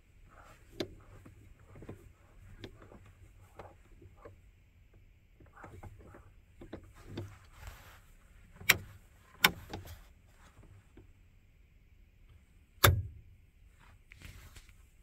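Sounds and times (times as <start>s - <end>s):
rocker switch clicks: 12.8s - 13.2s.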